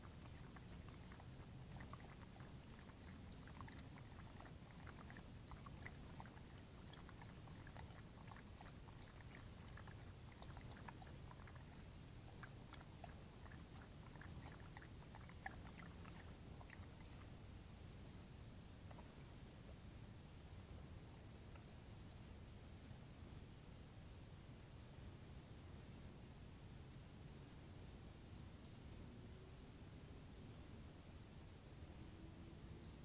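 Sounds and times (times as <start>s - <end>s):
animal lapping water: 0.0s - 17.4s
low steady hum: 0.0s - 33.0s.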